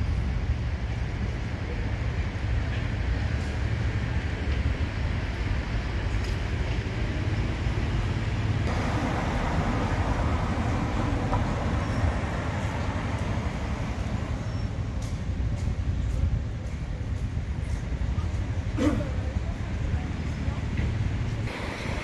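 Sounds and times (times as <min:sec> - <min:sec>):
passing vehicles rumbling: 0:00.0 - 0:22.0
heavy vehicle passing: 0:08.1 - 0:15.0.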